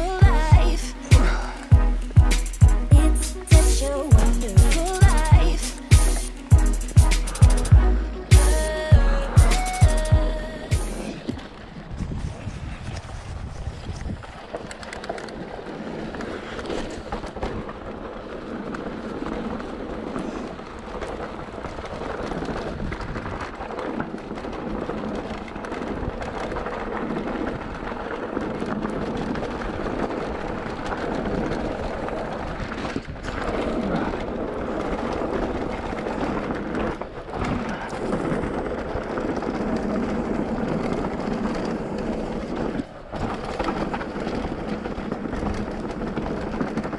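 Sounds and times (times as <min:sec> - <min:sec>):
bike rattling: 0:00.0 - 0:46.9
tyres rumbling on dirt: 0:00.0 - 0:46.9
wind buffeting microphone: 0:10.2 - 0:46.9.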